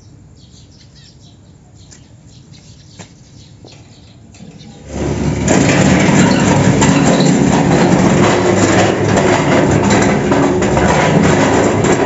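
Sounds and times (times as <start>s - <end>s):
iron gate grinding: 4.2s - 12.0s.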